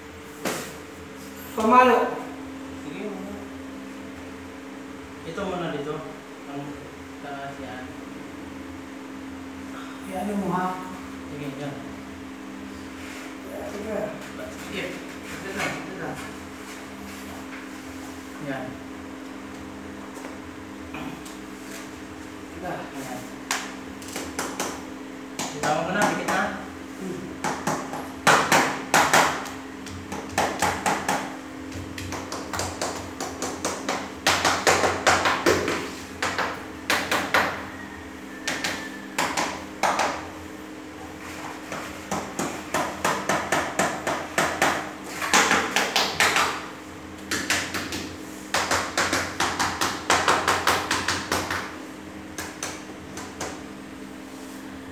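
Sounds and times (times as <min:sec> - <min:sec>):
hammer tapping on wall panels: 0:23.5 - 0:26.6, 0:27.4 - 0:37.6, 0:38.4 - 0:40.3, 0:41.6 - 0:51.8.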